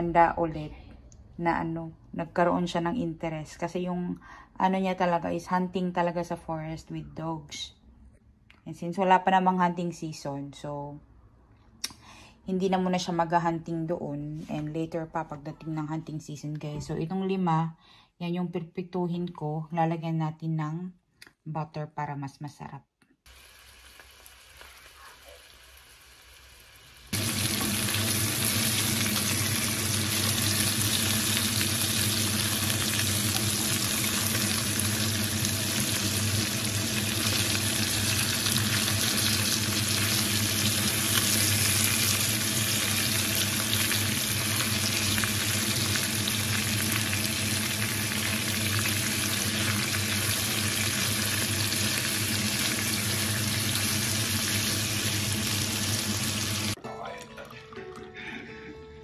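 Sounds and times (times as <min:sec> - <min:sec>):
fish sizzling in a pan: 0:23.3 - 0:56.8.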